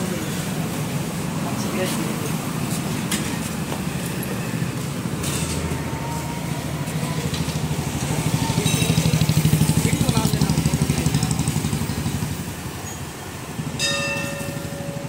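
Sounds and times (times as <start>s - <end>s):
motorcycle engine idling: 6.9s - 15.0s.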